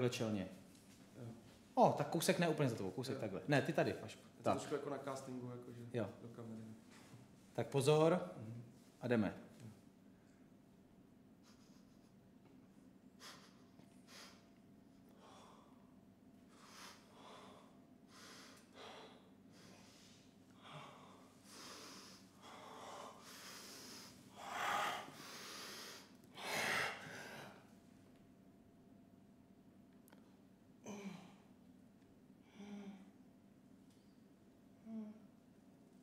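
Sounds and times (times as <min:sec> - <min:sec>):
person breathing hard: 0:13.2 - 0:27.7.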